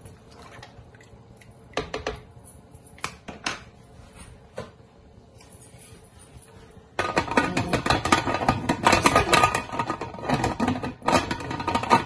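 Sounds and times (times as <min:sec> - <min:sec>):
metal lid clattering on pot: 0:07.0 - 0:12.0.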